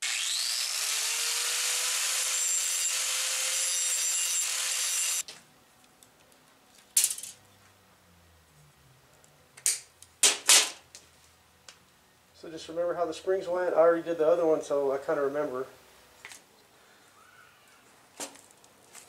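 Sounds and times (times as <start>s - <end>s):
angle grinder grinding metal: 0.0s - 5.2s.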